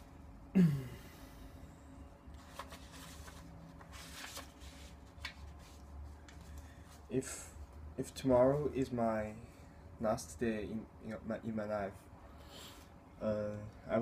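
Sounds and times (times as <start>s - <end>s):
low room hum: 0.0s - 14.0s
folder rustling: 2.4s - 6.6s.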